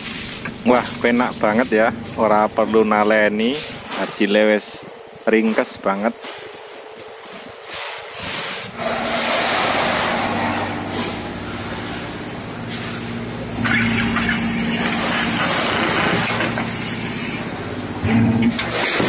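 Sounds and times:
hydraulic press motor and pump hum: 4.9 - 19.0.

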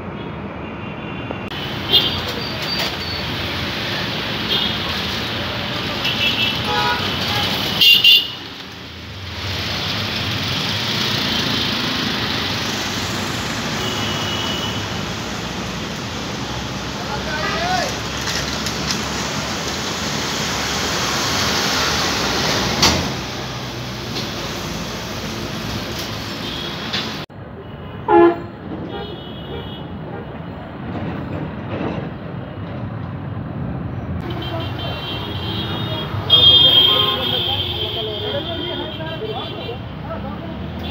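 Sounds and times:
road traffic: 0.0 - 40.9
high horn toots: 28.0 - 29.6, 34.2 - 39.7.

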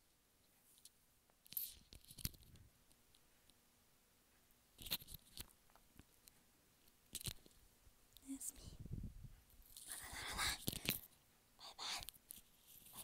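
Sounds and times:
soft clicks and rustles: 0.0 - 8.7, 9.3 - 11.4, 12.0 - 13.0.

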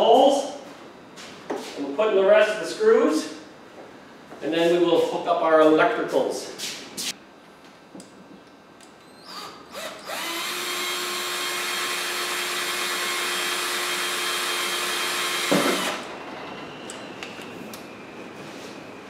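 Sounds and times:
power drill drilling: 9.2 - 16.1.

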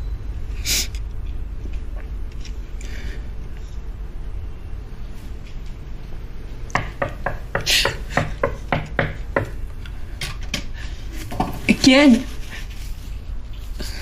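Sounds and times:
knocking on wooden door: 6.8 - 9.6.

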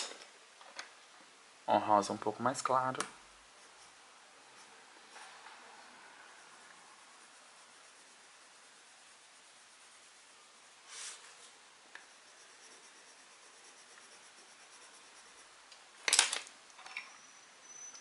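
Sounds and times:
colored pencil scratching on paper: 3.5 - 15.7.

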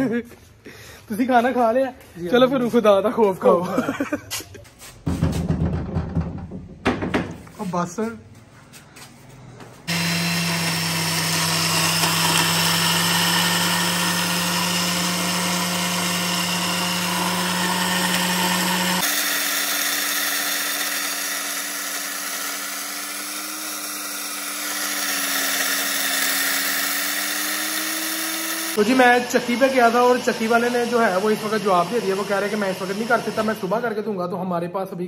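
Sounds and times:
blender motor grinding seeds: 9.9 - 34.0.

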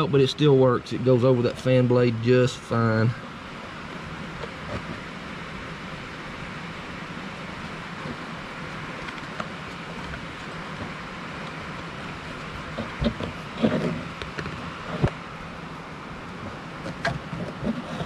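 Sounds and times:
steady background hiss: 0.0 - 18.0.

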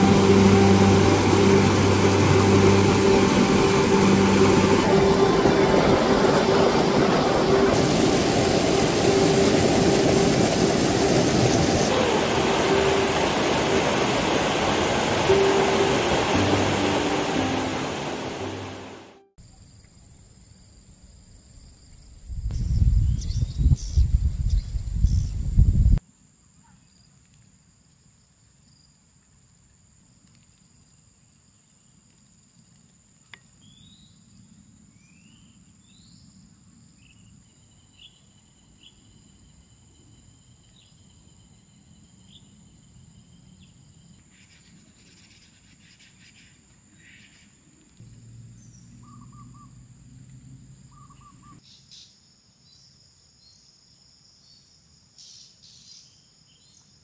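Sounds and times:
low hum: 0.0 - 19.3
insects trilling: 29.6 - 56.9.

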